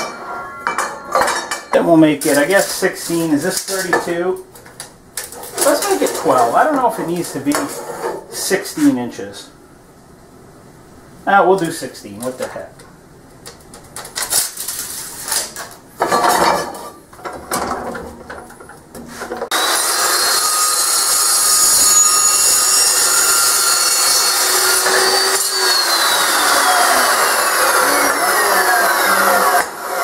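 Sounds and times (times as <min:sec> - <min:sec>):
steel bar clattering: 0:00.0 - 0:04.1
chop saw cutting steel: 0:02.3 - 0:04.1, 0:05.4 - 0:06.6, 0:19.5 - 0:30.0.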